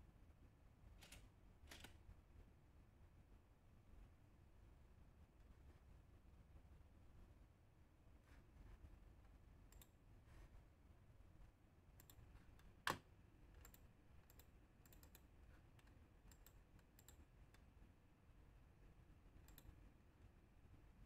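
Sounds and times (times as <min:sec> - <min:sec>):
keyboard and mouse clicks: 0:01.0 - 0:02.0, 0:09.7 - 0:10.0, 0:12.0 - 0:17.6, 0:19.4 - 0:19.8.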